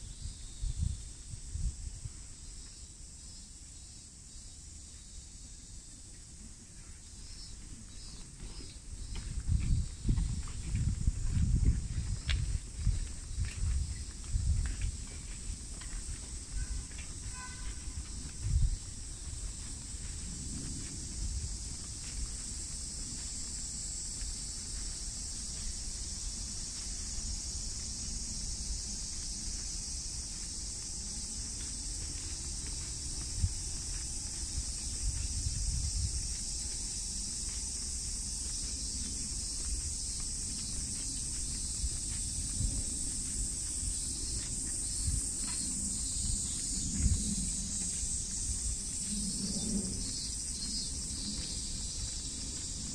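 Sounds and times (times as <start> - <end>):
high-pitched insect drone: 7.1 - 52.9.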